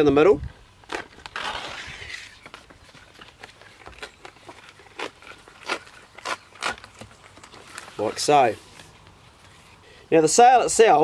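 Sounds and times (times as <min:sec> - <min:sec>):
leaves tearing: 0:00.8 - 0:09.1
crackles and snaps of leaf fibres: 0:02.4 - 0:08.3.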